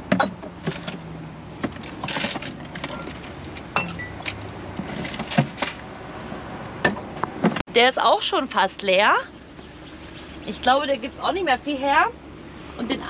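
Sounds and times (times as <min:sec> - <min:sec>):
metal camping gear clinking: 0:02.0 - 0:04.4.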